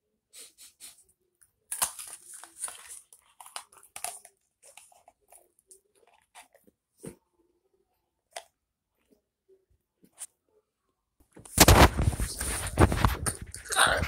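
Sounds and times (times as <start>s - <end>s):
paper cup crinkling: 1.7s - 6.7s, 11.5s - 14.0s.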